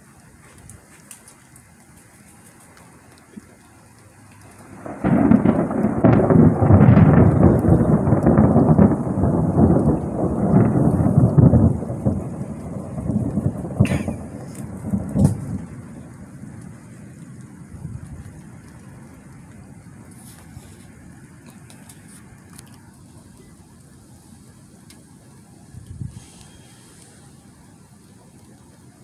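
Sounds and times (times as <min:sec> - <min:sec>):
loud thunder rumble: 0:04.5 - 0:20.2.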